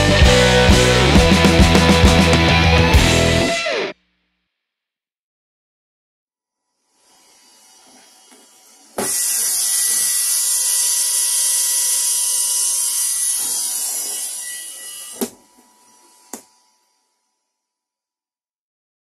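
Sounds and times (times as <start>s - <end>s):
router whine and hiss: 7.0s - 17.2s.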